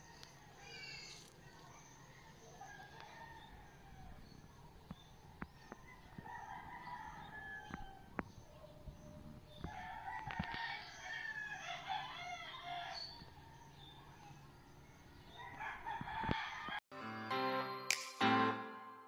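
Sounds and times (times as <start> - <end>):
roosters crowing: 2.0 - 4.5, 5.4 - 8.4, 9.4 - 14.2, 15.1 - 16.8.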